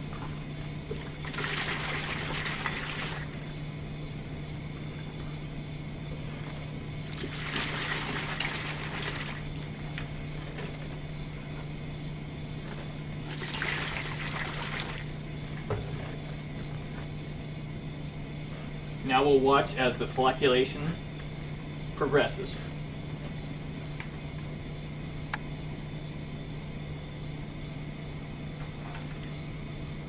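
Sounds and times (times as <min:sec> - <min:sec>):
steady low hum: 0:00.0 - 0:30.0
water sloshing in plastic bottle: 0:00.8 - 0:03.5, 0:07.0 - 0:09.5, 0:13.2 - 0:16.2.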